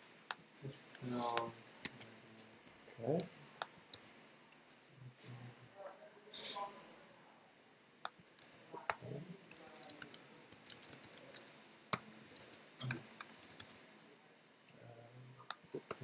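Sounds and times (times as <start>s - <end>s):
keyboard typing clicks: 8.1s - 13.8s.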